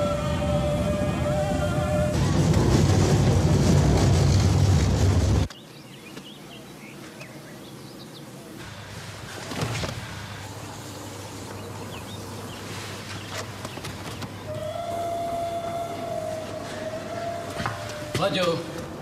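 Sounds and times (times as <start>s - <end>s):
train rushing along track: 0.0s - 5.6s, 8.3s - 19.0s
low rumble: 0.6s - 5.5s.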